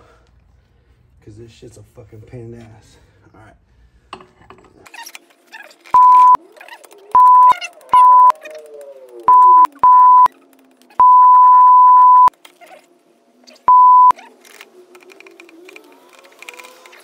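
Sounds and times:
censor beeps: 0:06.0 - 0:06.4, 0:07.2 - 0:08.3, 0:09.3 - 0:10.3, 0:11.0 - 0:12.3, 0:13.7 - 0:14.1.

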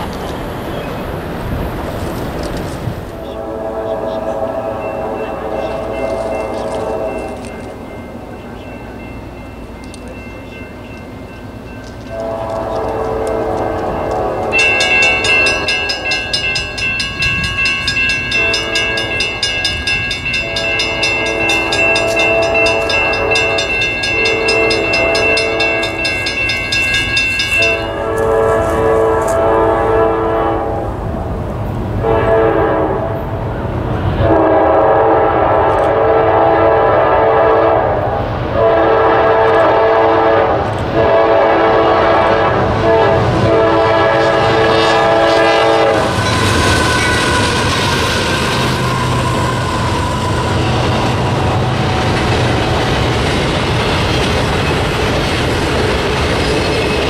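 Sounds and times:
locomotive air horn blasts: 0:03.2 - 0:07.6, 0:12.1 - 0:26.2, 0:27.5 - 0:31.0, 0:32.0 - 0:33.2, 0:34.2 - 0:52.2
crossing bell ringing rapidly: 0:04.5 - 0:13.3, 0:13.9 - 0:28.5, 0:44.2 - 0:57.0.

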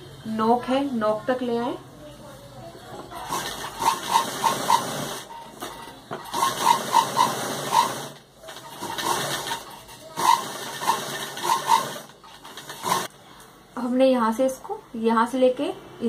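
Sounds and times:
sewing machine stitching: 0:03.2 - 0:13.1.

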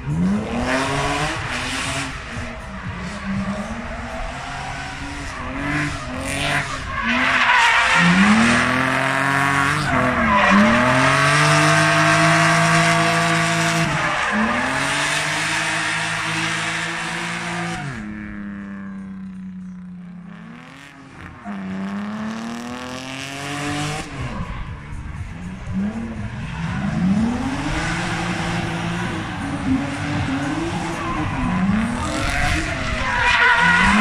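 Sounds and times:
car engine revving: 0:00.0 - 0:34.0
tyres squealing: 0:27.3 - 0:34.0.

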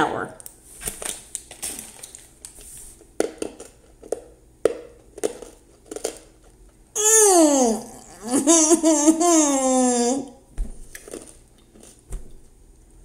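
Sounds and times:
person groaning in disgust: 0:07.0 - 0:10.4.

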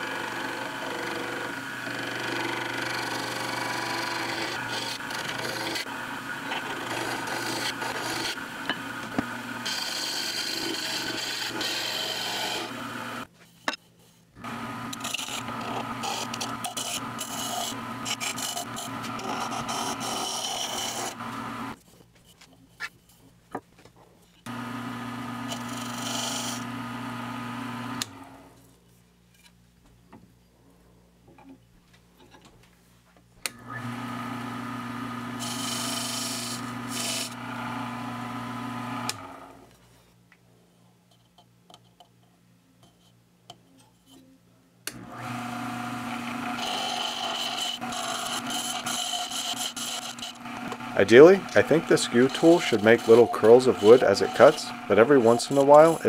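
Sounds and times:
wood lathe motor humming: 0:00.0 - 0:13.3, 0:14.4 - 0:21.8, 0:24.5 - 0:28.5, 0:33.4 - 0:39.7, 0:44.9 - 0:56.0
chisel scraping spinning wood: 0:00.2 - 0:13.8, 0:14.4 - 0:21.9, 0:24.5 - 0:28.2, 0:35.2 - 0:39.3, 0:45.2 - 0:56.0.

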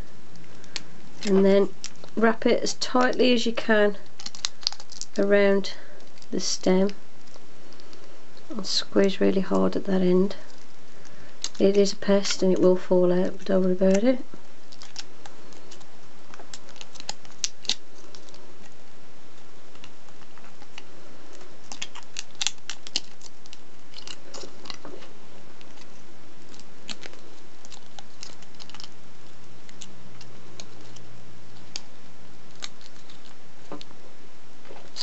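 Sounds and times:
foil wrapper crinkling: 0:00.3 - 0:09.5, 0:10.2 - 0:12.5, 0:13.4 - 0:18.8, 0:19.7 - 0:33.9.

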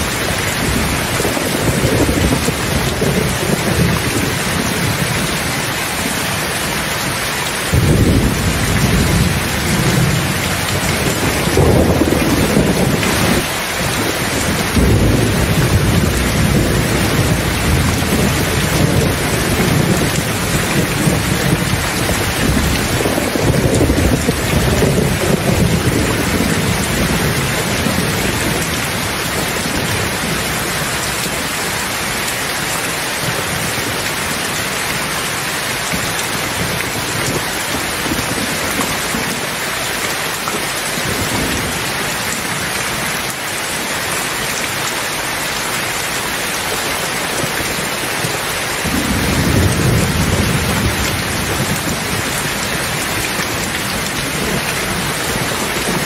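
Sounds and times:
thunder rumbling: 0:00.0 - 0:06.3, 0:07.7 - 0:31.8, 0:48.8 - 0:56.0
steady rain hissing: 0:00.0 - 0:56.0.

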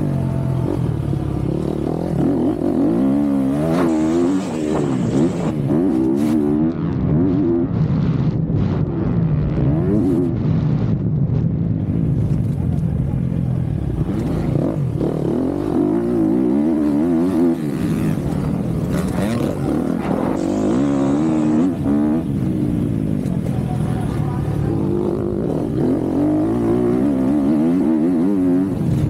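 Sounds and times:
motocross bike engine revving: 0:00.0 - 0:08.0, 0:13.8 - 0:29.0.

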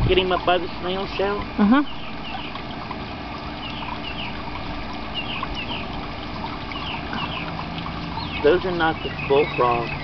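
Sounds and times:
water trickling: 0:00.0 - 0:10.0
bird chirps: 0:01.8 - 0:02.6, 0:03.6 - 0:04.4, 0:05.1 - 0:05.9, 0:06.7 - 0:10.0.

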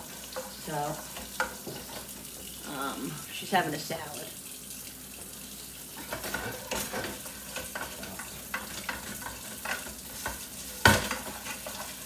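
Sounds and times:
running tap water: 0:00.0 - 0:12.0
brush scrubbing a pan: 0:06.0 - 0:12.0.

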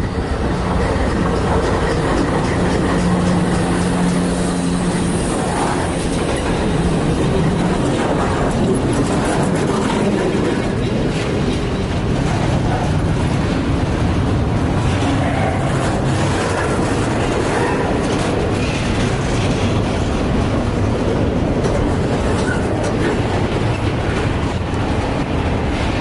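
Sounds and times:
freight cars rumbling: 0:00.0 - 0:26.0
locomotive engines droning: 0:00.0 - 0:26.0
steel wheels clacking on rails: 0:00.0 - 0:26.0.

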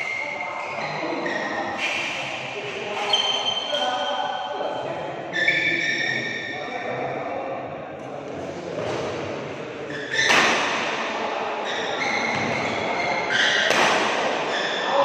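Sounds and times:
shoes squeaking on court: 0:02.9 - 0:04.2, 0:09.9 - 0:10.7, 0:11.6 - 0:14.9
racket hitting shuttlecock: 0:10.0 - 0:11.2, 0:12.3 - 0:14.8.

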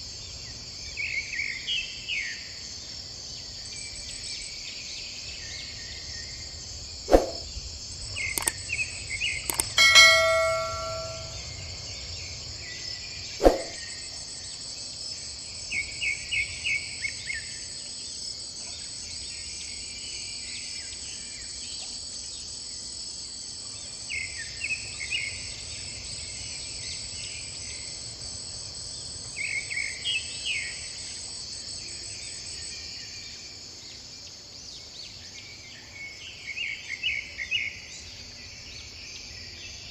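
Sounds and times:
high insect drone: 0:00.0 - 0:39.9
sharp clicks: 0:08.4 - 0:08.6, 0:09.5 - 0:11.2
bird chirps: 0:09.2 - 0:11.4
bell-like ring: 0:09.5 - 0:11.4.

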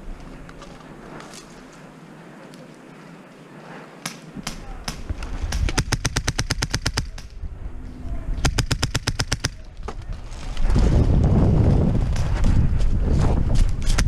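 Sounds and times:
airsoft rifle shots: 0:04.0 - 0:07.4, 0:08.4 - 0:09.7.

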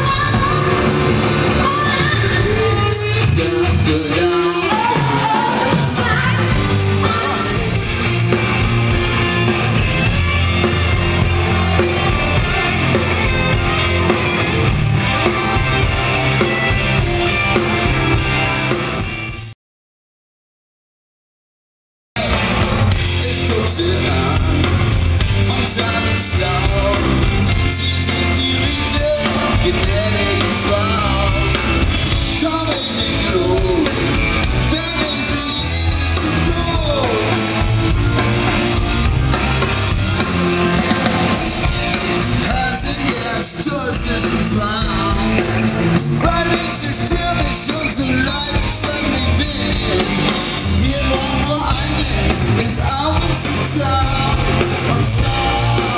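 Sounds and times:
person singing: 0:00.0 - 0:18.2, 0:23.0 - 0:38.4, 0:41.6 - 0:55.9
electric guitar: 0:00.0 - 0:19.5, 0:22.2 - 0:55.9
rock band playing live: 0:00.0 - 0:19.6, 0:22.2 - 0:55.9.

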